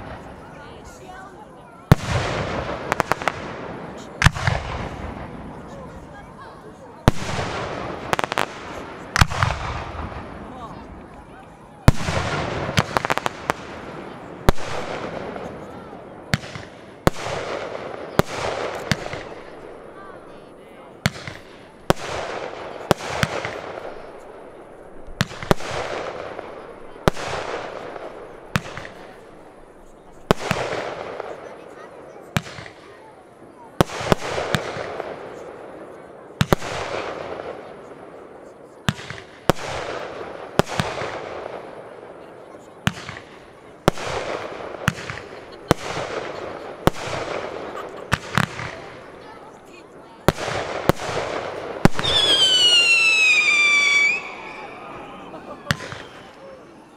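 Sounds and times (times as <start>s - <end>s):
firework bangs: 1.9s - 6.3s, 6.9s - 20.3s, 21.0s - 56.8s
firework hissing crackle: 50.2s - 56.6s.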